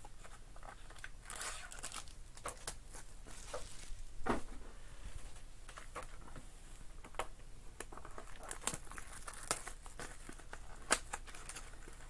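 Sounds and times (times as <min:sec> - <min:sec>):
foil wrapper tearing and crinkling: 0:00.8 - 0:04.0, 0:08.0 - 0:12.0.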